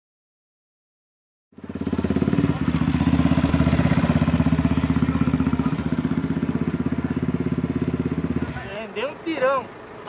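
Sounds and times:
motorcycle engine running at low revs: 1.6 - 8.7.

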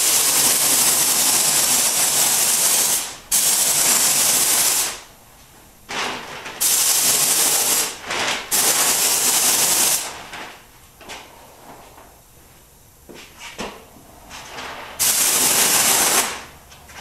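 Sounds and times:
paint spray gun hissing: 0.0 - 5.0, 15.0 - 16.4.

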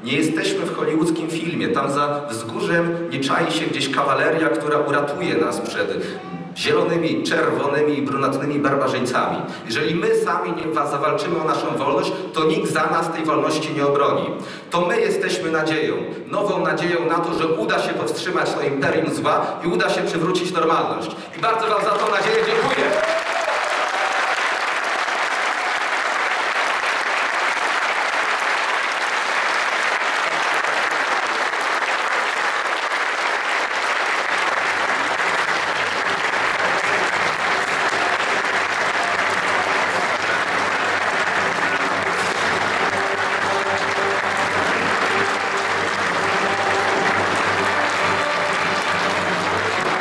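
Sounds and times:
audience applauding: 21.3 - 50.0.

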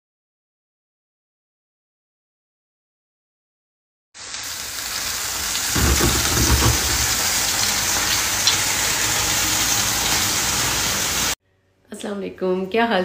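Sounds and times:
heavy rain hissing: 4.2 - 11.4.

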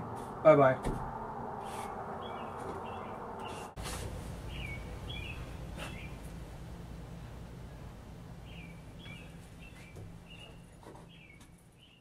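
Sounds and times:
outdoor background noise: 0.0 - 12.0
small songbird chirping: 1.6 - 3.8, 4.4 - 6.4, 8.4 - 12.0.

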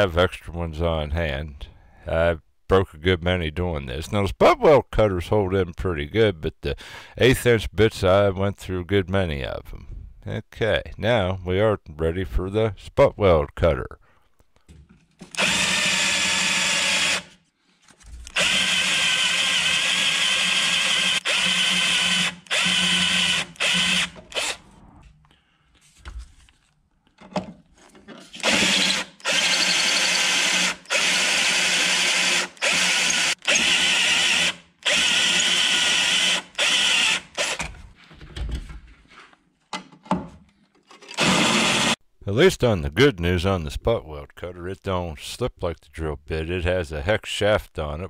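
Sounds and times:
drill cutting sheet metal: 15.3 - 17.4, 18.3 - 24.7, 28.3 - 37.7, 41.1 - 42.0.

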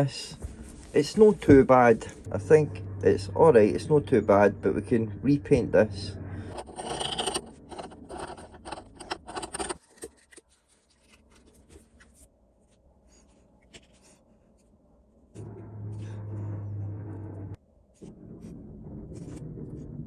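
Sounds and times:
steady low hum: 0.0 - 9.8, 15.2 - 20.0
metal and tin clicks and scrapes: 6.5 - 10.5.

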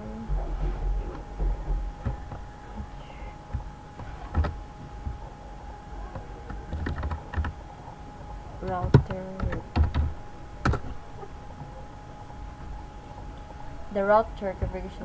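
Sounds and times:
dull low thumps: 0.0 - 11.8
faint steady hum: 0.0 - 15.0
keyboard keys clicking: 6.0 - 7.6, 8.6 - 11.0.

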